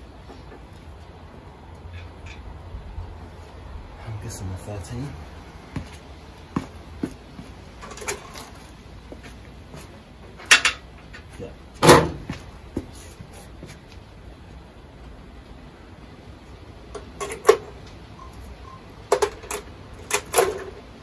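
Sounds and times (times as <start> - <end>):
tools and metal parts clinking: 7.8 - 8.6, 10.4 - 11.3, 16.9 - 17.8, 18.7 - 20.9
loud metal clunks: 11.8 - 12.3.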